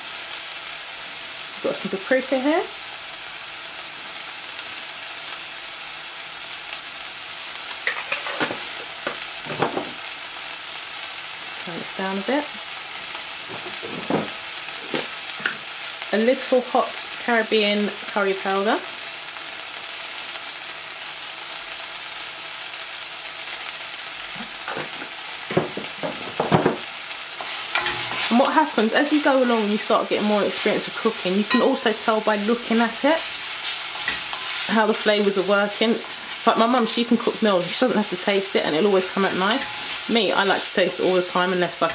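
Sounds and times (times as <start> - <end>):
onions sizzling in a pot: 0.0 - 41.9
sharp clicks and knocks: 24.7 - 26.8.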